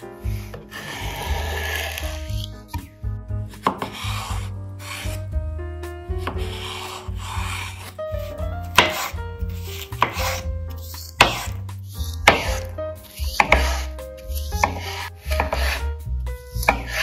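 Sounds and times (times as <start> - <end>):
background music: 0.0 - 17.0
knife scraping on board: 0.2 - 2.9, 3.6 - 5.2, 6.2 - 15.9, 16.5 - 17.0
knife chopping on cutting board: 3.5 - 5.1, 6.2 - 15.8, 16.5 - 17.0.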